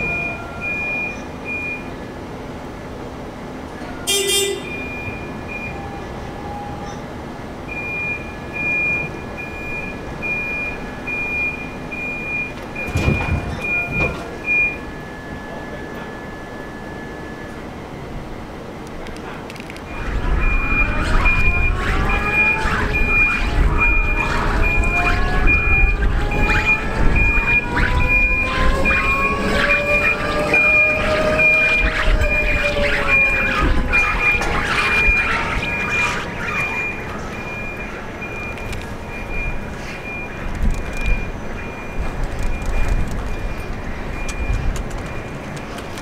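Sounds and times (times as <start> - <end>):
engine running with whining glides: 0.0 - 46.0
horn toot: 4.0 - 4.9
short high warning beeps: 4.1 - 7.0.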